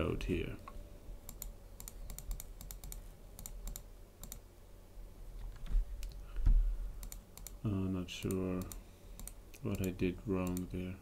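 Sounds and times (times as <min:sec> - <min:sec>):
computer mouse clicks: 0:01.3 - 0:04.4, 0:05.4 - 0:06.2, 0:07.0 - 0:07.6, 0:08.2 - 0:10.8.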